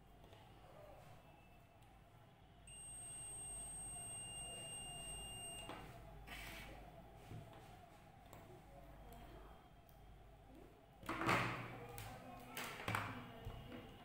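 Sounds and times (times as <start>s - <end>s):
multimeter continuity beep: 2.7s - 6.6s.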